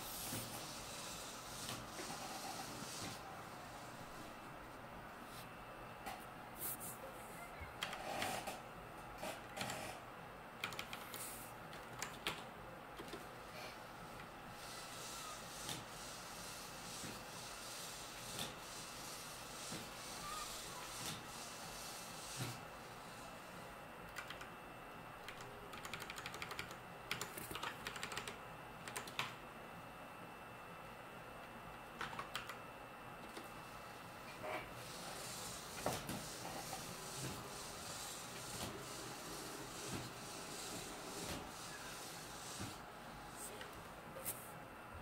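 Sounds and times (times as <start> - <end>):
computer keyboard typing: 7.8 - 8.3, 9.5 - 9.9, 10.6 - 13.2, 24.1 - 24.5, 25.2 - 29.4, 32.0 - 32.6.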